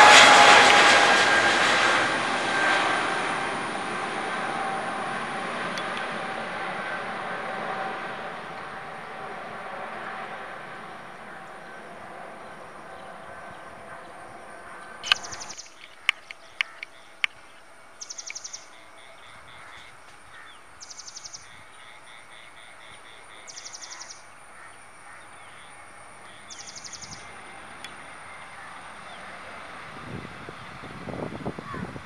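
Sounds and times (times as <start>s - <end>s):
faint outdoor background: 0.0s - 32.0s
bird trilling: 15.0s - 17.2s, 18.0s - 24.3s
sharp clicks: 15.0s - 17.4s.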